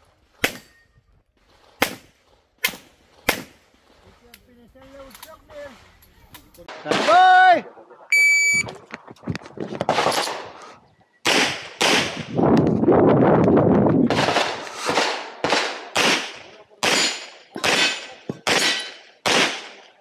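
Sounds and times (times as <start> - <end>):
pistol shots: 11.2 - 12.4, 14.1 - 20.0.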